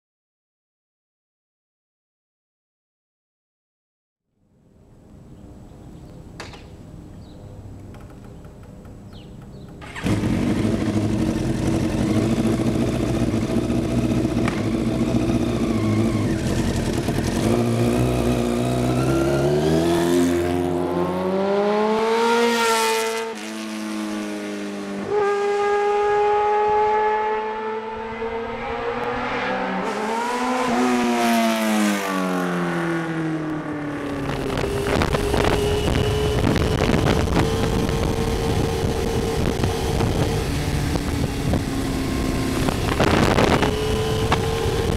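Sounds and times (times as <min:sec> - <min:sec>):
motorcycle engine revving: 0:09.5 - 0:44.9
motorcycle passing by: 0:09.8 - 0:44.9
wind rush: 0:34.1 - 0:44.9.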